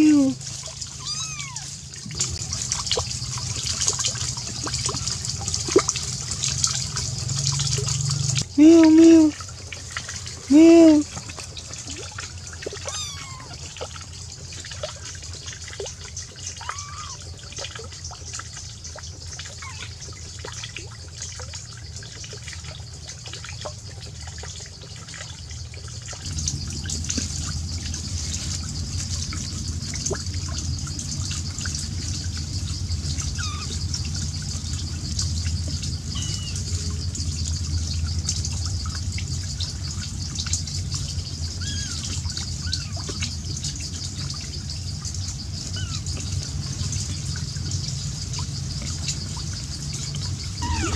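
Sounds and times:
kitten mewing: 0:00.0 - 0:00.4, 0:01.0 - 0:01.8, 0:12.8 - 0:13.7, 0:50.6 - 0:50.9
water trickling: 0:00.0 - 0:50.9.

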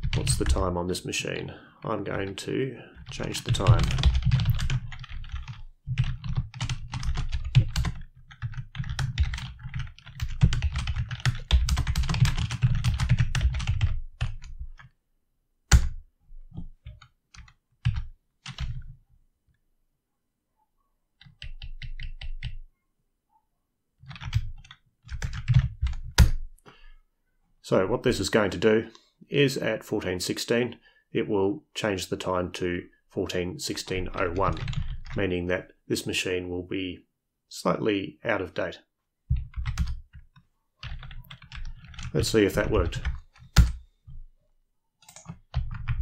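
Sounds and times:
typing on computer keyboard: 0:03.0 - 0:14.9, 0:16.6 - 0:18.9, 0:21.2 - 0:22.6, 0:24.0 - 0:26.4, 0:39.3 - 0:43.8, 0:45.0 - 0:46.0.

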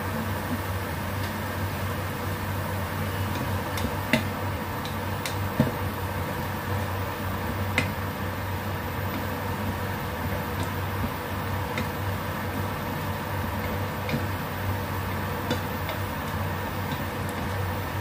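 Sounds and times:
cooktop hum and hiss: 0:00.0 - 0:18.0.

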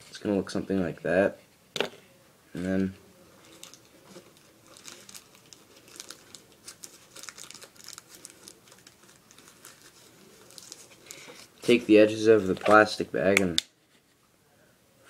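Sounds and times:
plastic bag crinkling: 0:03.4 - 0:13.0.

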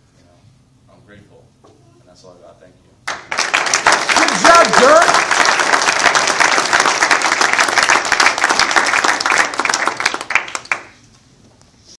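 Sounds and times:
audience applauding: 0:03.1 - 0:11.0.

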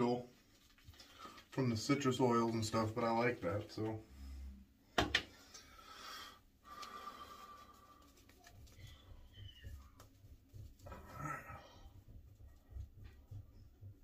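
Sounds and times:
breathing: 0:01.0 - 0:01.5, 0:04.0 - 0:08.1
shaving brush scrubbing lather: 0:07.3 - 0:14.0.

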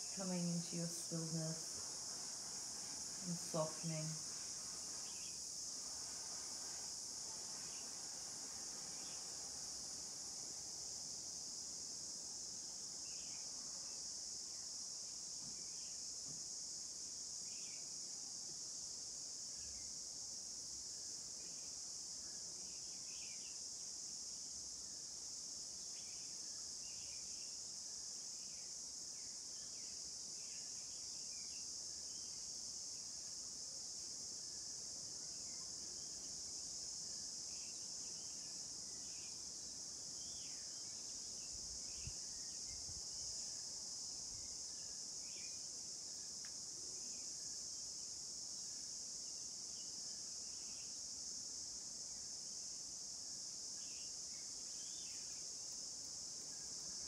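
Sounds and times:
high-pitched insect chorus: 0:00.0 - 0:57.0
short insect chirps: 0:53.7 - 0:57.0.

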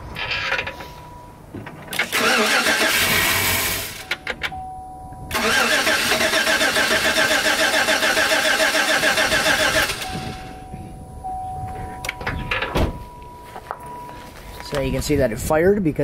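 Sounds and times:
truck engine starter cranking: 0:01.8 - 0:04.6, 0:05.3 - 0:10.6.

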